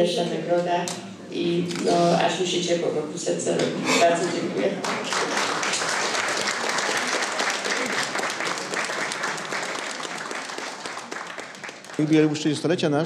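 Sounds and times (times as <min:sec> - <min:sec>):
audience applauding: 0:04.8 - 0:12.9.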